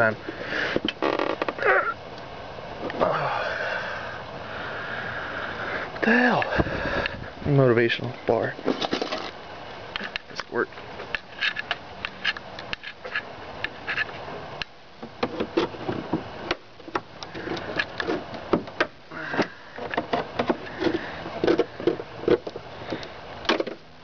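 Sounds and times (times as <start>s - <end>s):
plastic and metal clicks and creaks: 0.8s - 1.7s, 15.0s - 23.8s.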